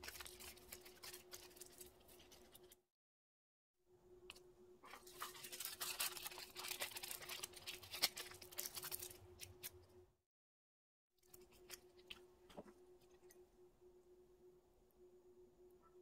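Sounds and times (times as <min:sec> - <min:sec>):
aluminium foil crinkling: 0:00.0 - 0:02.8, 0:04.9 - 0:09.8
faint steady hum: 0:03.9 - 0:10.2, 0:11.2 - 0:16.0.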